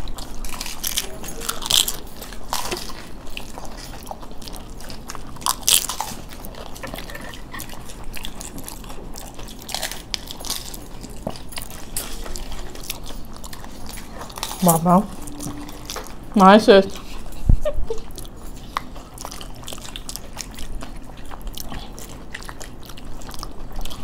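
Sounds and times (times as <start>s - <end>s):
people chewing and crunching: 0.0s - 24.0s.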